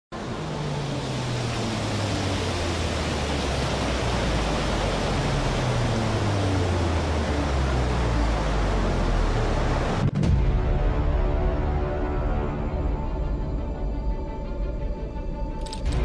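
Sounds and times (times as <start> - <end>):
volcano eruption roaring: 0.2 - 10.1.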